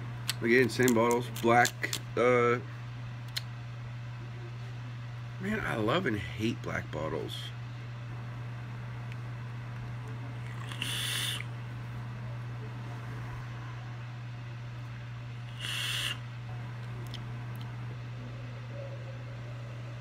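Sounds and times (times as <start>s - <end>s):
steady low hum: 0.0s - 20.0s
person exhaling vapour: 10.4s - 11.5s, 15.5s - 16.2s.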